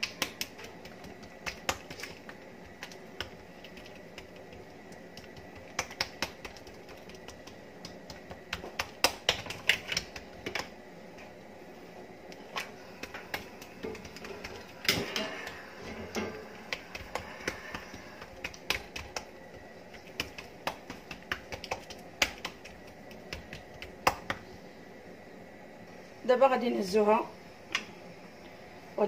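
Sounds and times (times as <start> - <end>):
hands slapping dough on countertop: 0.0 - 10.7, 12.3 - 24.5.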